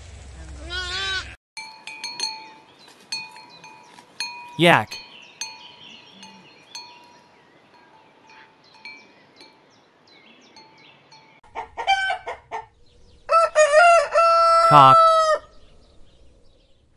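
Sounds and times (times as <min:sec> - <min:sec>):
sheep bleating: 0:00.7 - 0:01.3.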